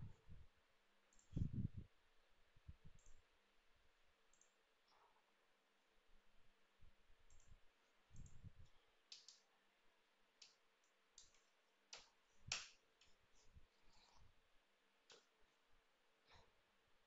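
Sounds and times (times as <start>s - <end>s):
computer mouse clicks: 1.1s - 1.4s, 3.0s - 3.2s, 4.3s - 4.6s, 7.3s - 8.5s, 9.1s - 9.5s, 10.4s - 13.2s.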